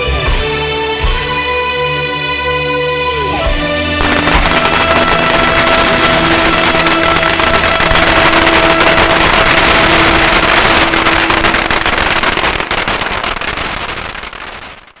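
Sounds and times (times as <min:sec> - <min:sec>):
held musical tone: 0:02.2 - 0:11.6
firecrackers crackling: 0:03.9 - 0:15.0.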